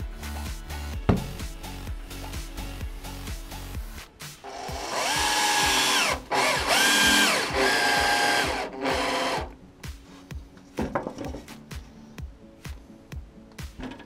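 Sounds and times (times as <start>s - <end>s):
power drill whining: 4.5s - 9.5s.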